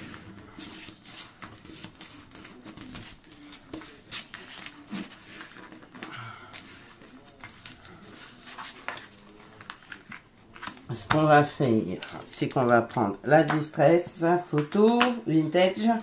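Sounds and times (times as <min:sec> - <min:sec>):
card stock rustling: 0:00.0 - 0:14.0.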